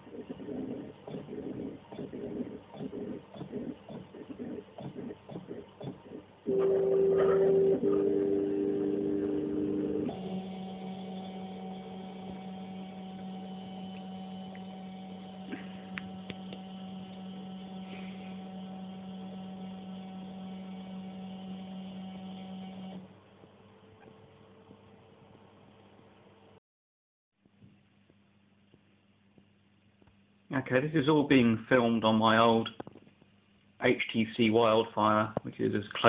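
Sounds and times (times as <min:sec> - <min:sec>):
printer stepper motors whining: 0:00.0 - 0:23.0
quiet steady hum: 0:27.4 - 0:36.0.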